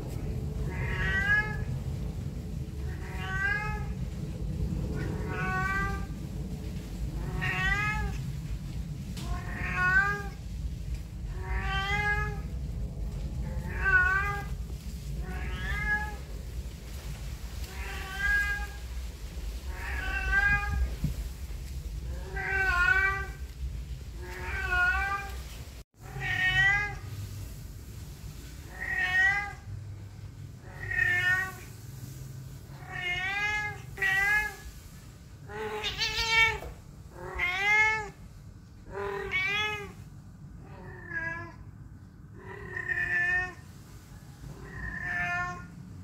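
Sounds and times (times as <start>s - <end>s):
cat meowing: 0.6s - 1.7s, 2.8s - 4.0s, 4.9s - 6.2s, 7.2s - 8.2s, 9.2s - 10.4s, 11.3s - 12.5s, 13.5s - 14.6s, 15.2s - 16.3s, 17.7s - 18.9s, 19.7s - 21.2s, 22.1s - 23.5s, 24.2s - 27.1s, 28.6s - 29.7s, 30.6s - 31.8s, 32.7s - 34.7s, 35.4s - 38.2s, 38.8s - 40.0s, 40.6s - 41.6s, 42.3s - 43.6s, 44.5s - 45.8s.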